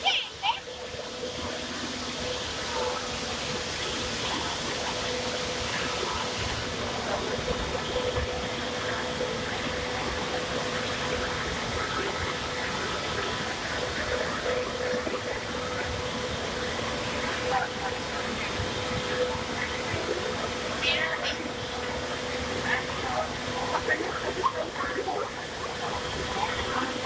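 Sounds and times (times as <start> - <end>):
industrial machinery roar: 0.0 - 27.0
steady hum: 0.0 - 27.0.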